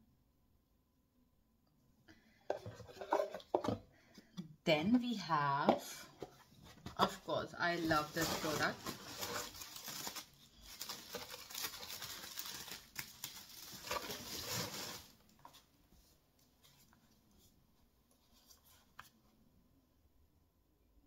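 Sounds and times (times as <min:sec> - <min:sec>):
packaging rustling: 0:06.6 - 0:15.7.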